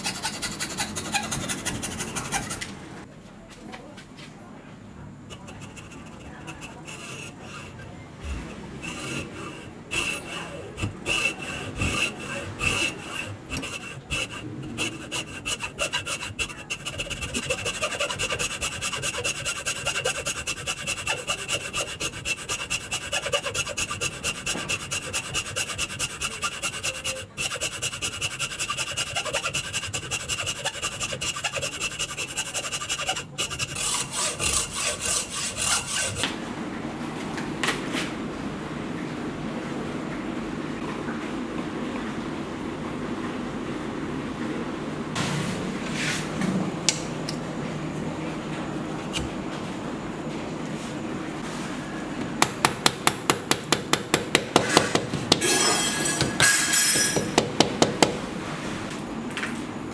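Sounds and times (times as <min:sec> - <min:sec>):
hacksaw cutting wood: 0:00.0 - 0:02.8, 0:05.3 - 0:36.3, 0:52.4 - 0:58.2.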